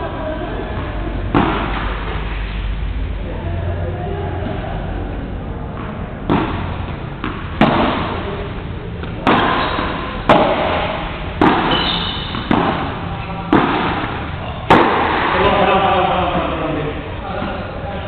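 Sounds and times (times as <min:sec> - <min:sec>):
padel ball hits echoing: 0:05.8 - 0:08.3, 0:09.0 - 0:15.7.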